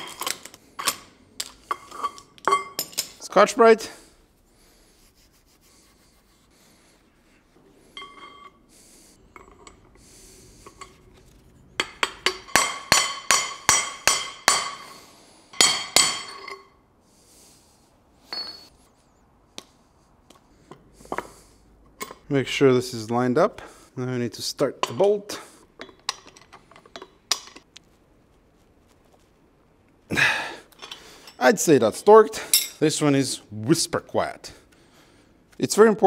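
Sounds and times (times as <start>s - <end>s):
light metal clinks and scrapes: 0.0s - 3.3s, 7.8s - 12.6s, 15.5s - 16.8s, 18.2s - 19.0s, 30.8s - 31.5s
hammer striking metal: 11.8s - 14.9s.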